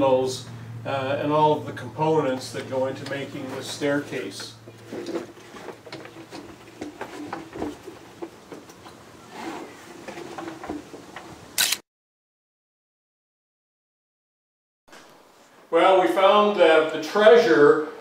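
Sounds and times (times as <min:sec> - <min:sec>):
sharp loud click: 0:11.6 - 0:11.8.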